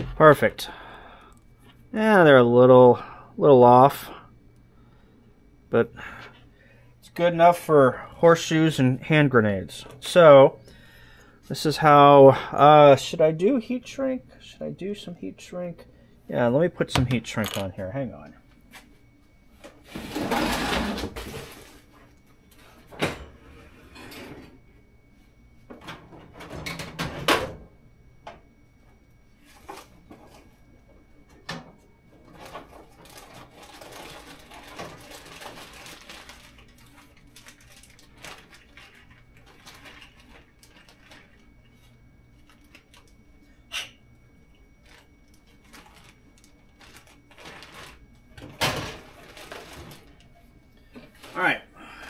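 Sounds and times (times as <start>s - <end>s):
objects clacking when set down: 17.0s - 17.7s
rustling through storage: 44.8s - 48.1s, 48.8s - 50.3s.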